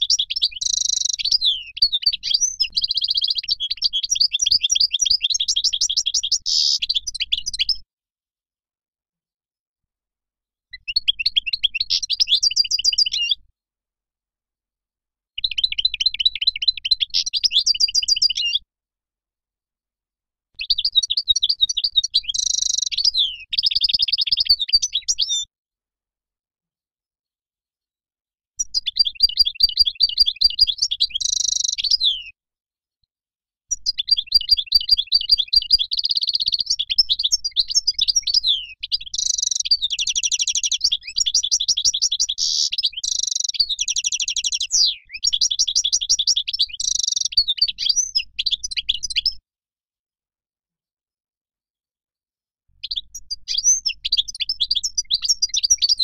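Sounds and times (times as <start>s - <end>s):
goldfinch singing: 0.0s - 7.8s, 10.7s - 13.4s, 15.4s - 18.6s, 20.6s - 25.5s, 28.6s - 32.4s, 33.8s - 49.4s, 52.8s - 56.0s.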